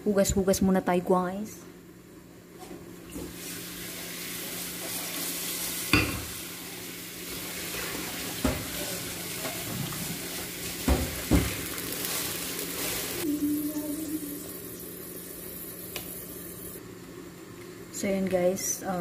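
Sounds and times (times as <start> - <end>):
meat sizzling in a pan: 3.4 - 16.8.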